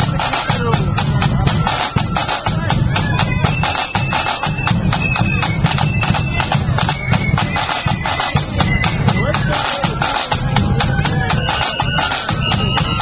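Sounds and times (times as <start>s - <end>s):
bass drum: 0.0s - 13.0s
flutes playing melody: 0.0s - 13.0s
rapid drumbeats: 0.0s - 13.0s.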